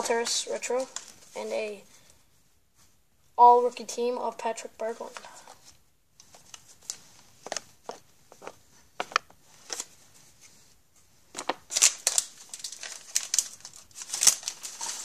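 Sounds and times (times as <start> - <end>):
wrapper crinkling: 0.0 - 1.4, 11.3 - 15.0
cards clicking and tapping: 7.4 - 9.8.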